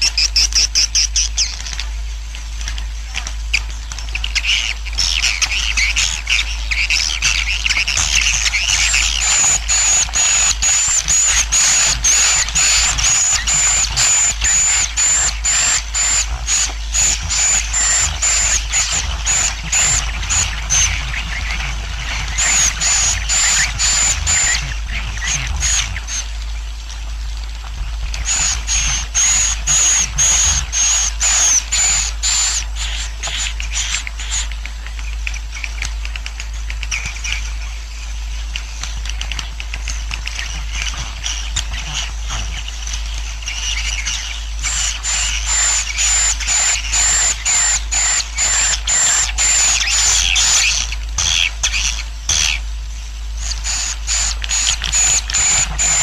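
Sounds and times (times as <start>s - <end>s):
low hum: 0.0s - 35.9s
swiftlets chirping: 7.4s - 26.4s.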